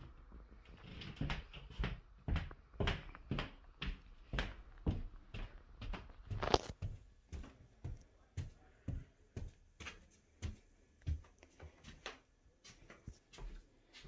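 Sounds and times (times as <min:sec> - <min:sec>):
footsteps on a floor: 0:00.0 - 0:14.0.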